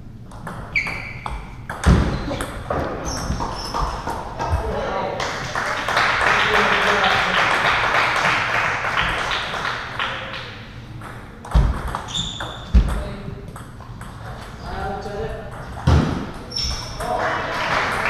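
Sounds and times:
ball bouncing ping: 0.3 - 4.6, 10.9 - 14.2.

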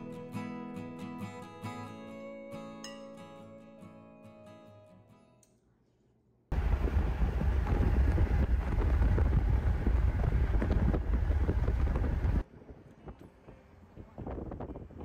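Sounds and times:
wind buffeting microphone: 6.5 - 13.4, 14.0 - 15.0
moving vehicle rumble: 6.5 - 15.0.

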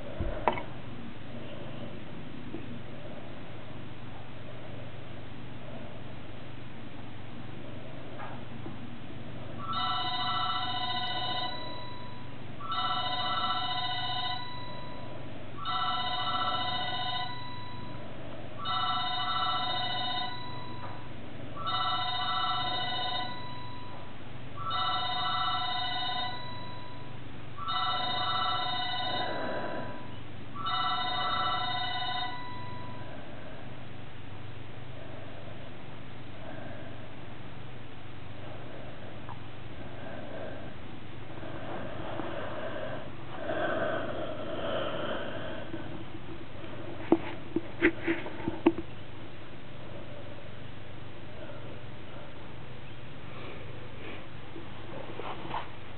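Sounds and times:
electronic telephone ringing: 9.6 - 18.0, 18.6 - 21.0, 21.6 - 24.0, 24.6 - 33.0.

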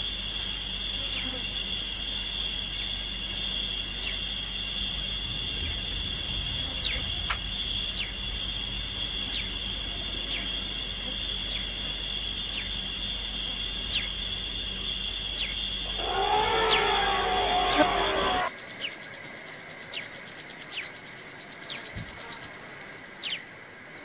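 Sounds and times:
high-pitched insect drone: 0.0 - 18.8
bird downward-sliding whistles: 15.9 - 18.5.

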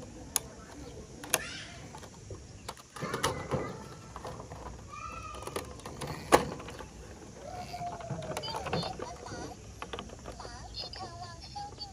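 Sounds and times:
plastic toy clicks and knocks: 0.3 - 11.9.

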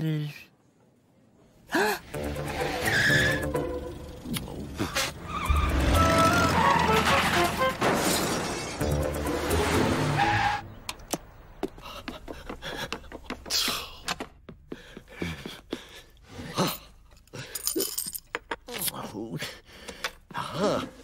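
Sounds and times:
music: 2.0 - 4.3, 5.5 - 10.7
cartoon crash shattering: 5.7 - 9.0.

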